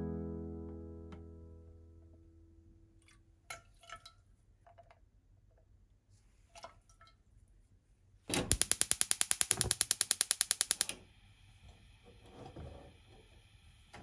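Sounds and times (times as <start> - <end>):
guitar note: 0.0 - 1.8.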